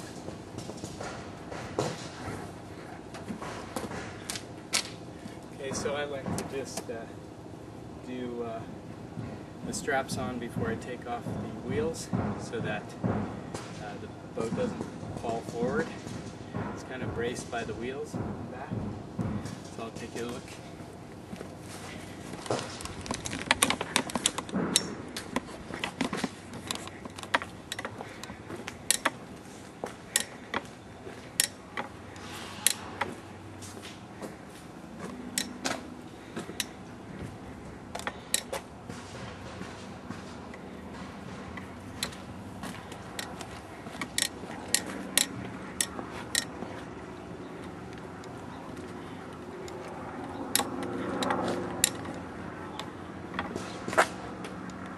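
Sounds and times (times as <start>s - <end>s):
tie-down strap hardware clicking: 22.3s - 29.2s, 30.1s - 30.7s, 31.3s - 33.1s, 35.0s - 35.8s, 37.9s - 38.6s, 41.5s - 46.8s, 47.6s - 53.6s.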